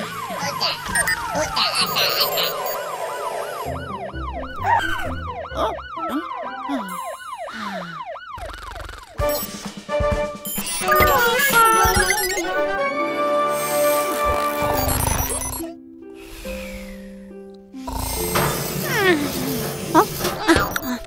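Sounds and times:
music: 0:00.0 - 0:07.2, 0:09.2 - 0:21.0
cartoon siren yelping: 0:00.0 - 0:09.2.

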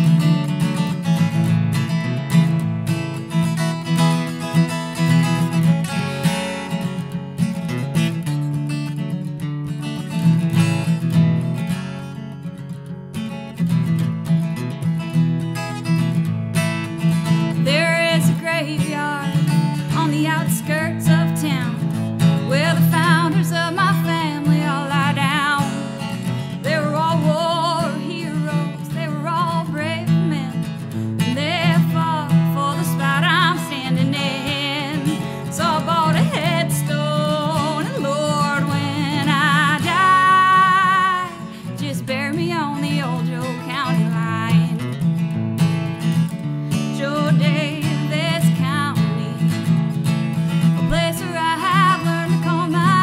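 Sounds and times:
acoustic guitar strumming: 0:00.0 - 0:53.0
woman singing: 0:17.5 - 0:45.1, 0:46.7 - 0:49.9, 0:50.6 - 0:53.0.

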